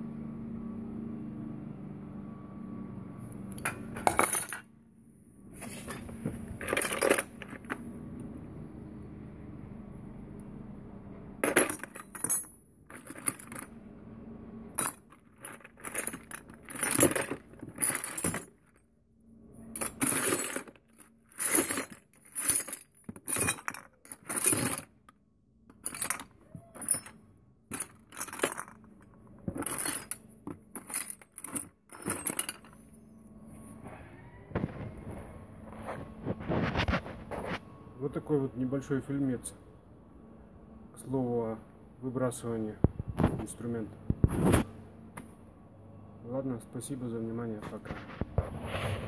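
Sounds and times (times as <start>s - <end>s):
screws and tools clinking: 3.4s - 4.6s, 5.7s - 7.8s, 11.4s - 13.7s, 14.8s - 18.8s, 19.8s - 25.0s, 25.7s - 32.8s.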